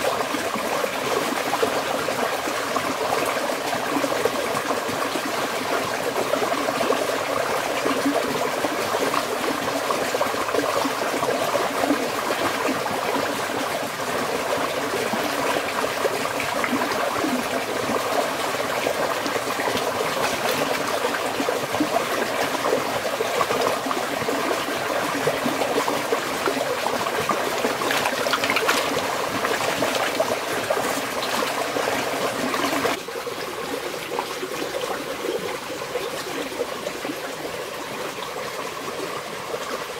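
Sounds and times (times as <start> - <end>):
stream running over rocks: 0.0 - 39.9
hands splashing in water: 27.7 - 31.4.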